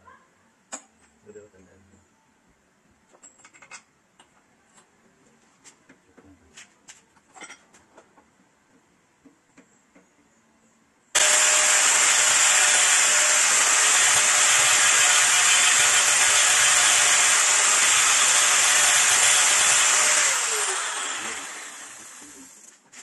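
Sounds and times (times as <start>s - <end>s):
air blower running: 11.2s - 22.5s.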